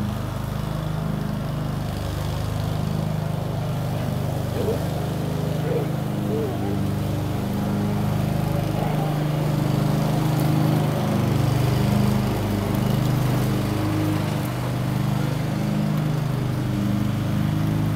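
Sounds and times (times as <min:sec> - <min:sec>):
dogs play-growling: 0:03.5 - 0:10.8.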